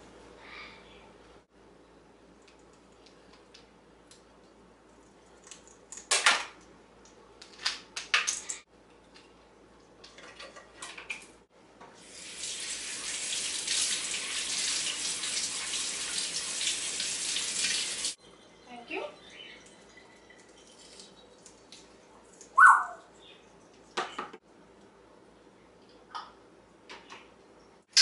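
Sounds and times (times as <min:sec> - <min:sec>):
faucet water running: 0:12.0 - 0:18.2, 0:19.5 - 0:22.6.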